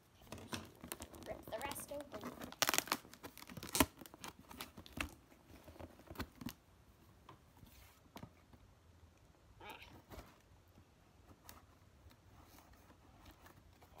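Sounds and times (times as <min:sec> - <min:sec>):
packaging tearing and crinkling: 0:00.3 - 0:05.2.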